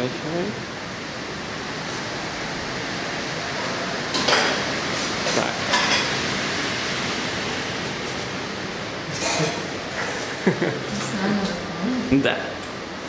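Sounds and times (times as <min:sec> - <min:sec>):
steady room hiss: 0:00.0 - 0:13.0
plates and crockery clinking: 0:05.3 - 0:06.2, 0:09.1 - 0:10.3.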